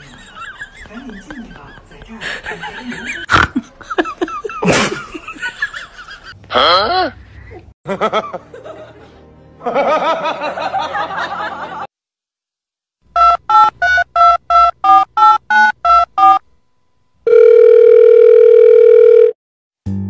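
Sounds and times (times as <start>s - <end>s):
steady dial tone: 17.3s - 19.4s.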